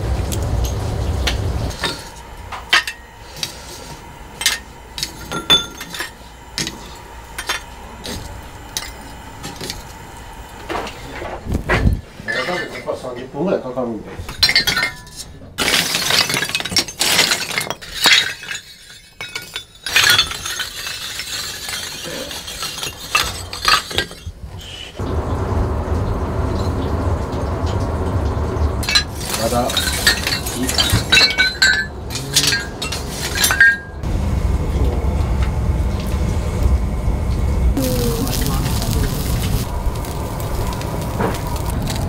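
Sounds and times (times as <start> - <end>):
fire crackles: 0.0 - 12.2, 25.0 - 31.2, 34.0 - 42.0
charcoal fire roaring: 0.0 - 14.5, 19.9 - 42.0.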